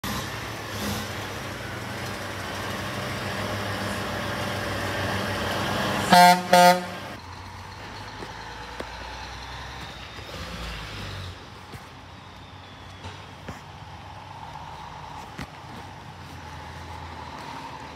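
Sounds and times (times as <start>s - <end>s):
truck diesel engine running: 0.0s - 17.9s
truck horn blasts: 6.0s - 7.2s.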